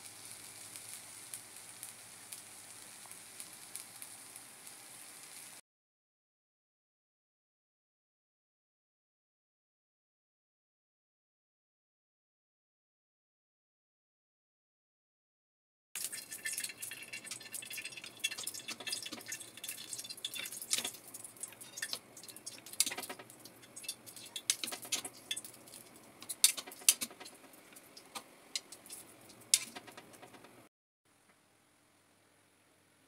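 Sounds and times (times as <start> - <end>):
sausages sizzling in a frying pan: 0.0 - 5.6, 16.0 - 30.4
metal tongs clicking: 16.5 - 30.4.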